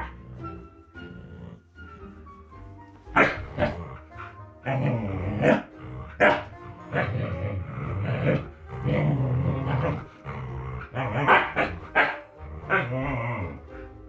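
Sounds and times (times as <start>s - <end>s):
dog barking: 3.2s - 3.7s, 5.4s - 7.1s, 11.1s - 12.8s
puppy grumbling: 3.2s - 13.7s.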